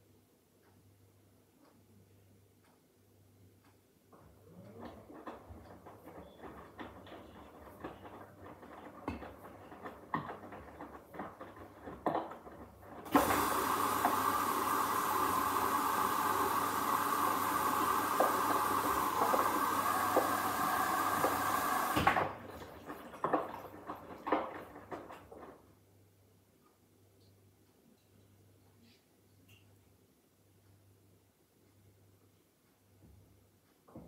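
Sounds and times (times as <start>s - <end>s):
washing machine drum sloshing: 5.0s - 25.6s
water inlet rushing hiss: 13.1s - 22.2s.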